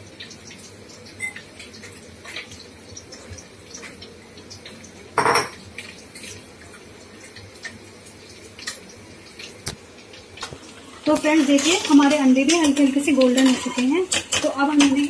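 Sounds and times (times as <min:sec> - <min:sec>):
onions frying sizzle: 0:00.0 - 0:15.0
spatula clattering against pan: 0:11.6 - 0:15.0.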